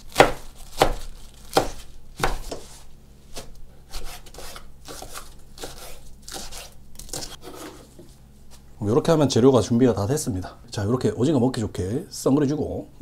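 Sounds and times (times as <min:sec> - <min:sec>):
knife chopping on wooden board: 0:00.1 - 0:02.7, 0:03.3 - 0:07.8.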